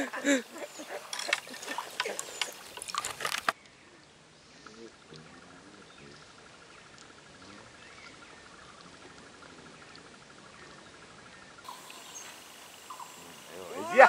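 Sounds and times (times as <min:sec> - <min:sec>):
insect trilling: 0:08.5 - 0:14.0.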